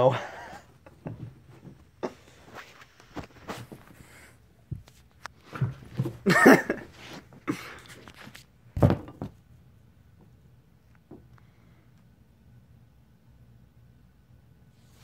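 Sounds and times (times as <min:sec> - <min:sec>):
kittens thumping and scuffling on carpet: 0:00.9 - 0:09.4.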